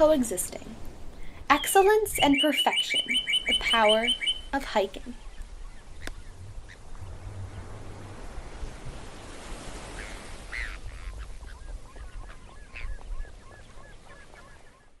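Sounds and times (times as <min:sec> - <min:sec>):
birds honking: 0:02.2 - 0:04.5, 0:05.8 - 0:07.9
short repeated bird chirps: 0:02.2 - 0:04.6
low background rumble: 0:04.4 - 0:09.1.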